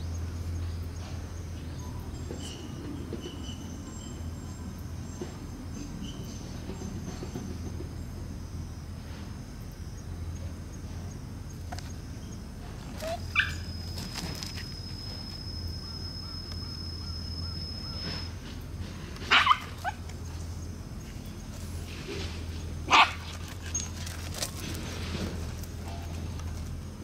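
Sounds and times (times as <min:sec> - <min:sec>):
puppies barking: 0:12.9 - 0:14.4, 0:19.2 - 0:20.4, 0:22.8 - 0:24.0.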